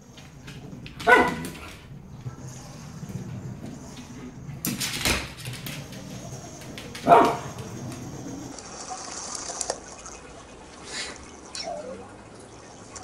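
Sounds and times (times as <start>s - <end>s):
clicking and scuffling: 0.0s - 8.5s
dog barking: 0.9s - 1.9s, 6.9s - 8.5s.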